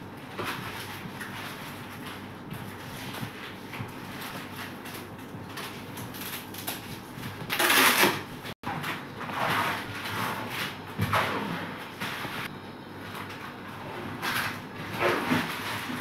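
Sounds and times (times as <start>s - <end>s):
plastic film scraping and tearing: 0.3s - 8.3s.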